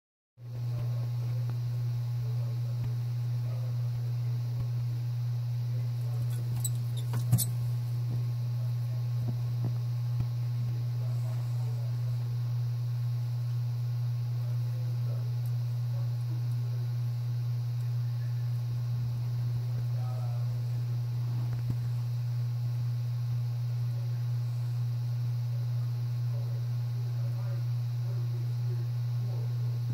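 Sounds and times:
steady low hum: 0:00.4 - 0:29.9
faint rustles: 0:06.0 - 0:07.8.

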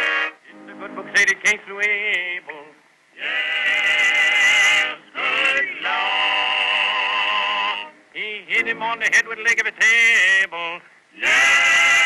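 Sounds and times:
group singing in harmony: 0:00.0 - 0:01.1, 0:03.2 - 0:08.0, 0:11.2 - 0:12.0.

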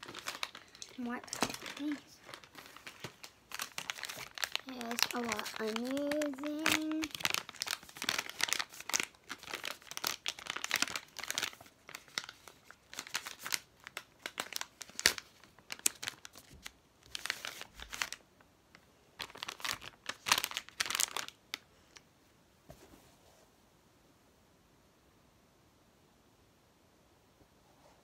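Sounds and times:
plastic packet crinkling: 0:00.0 - 0:21.7.

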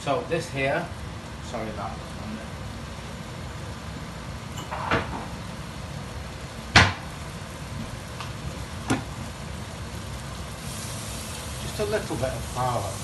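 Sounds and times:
steady low hum: 0:00.0 - 0:13.0
kitchen knocks and clunks: 0:04.6 - 0:05.3.

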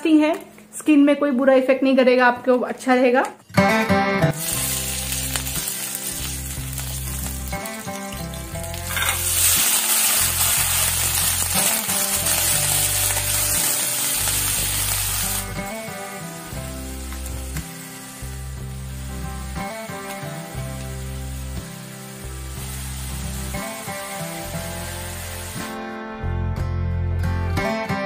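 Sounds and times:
background music with bass: 0:03.6 - 0:28.0
vegetables sizzling in a wok: 0:04.4 - 0:25.8.

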